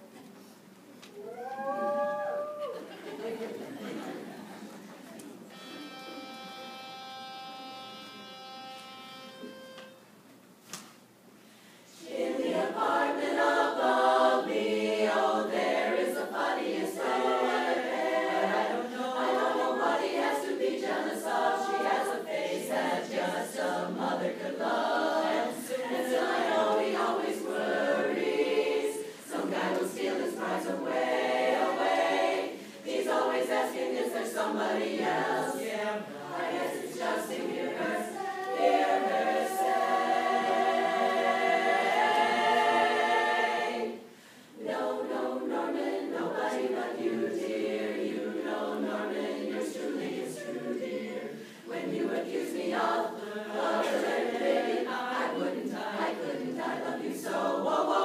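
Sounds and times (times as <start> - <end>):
chorus singing a cappella: 11.9 - 58.0.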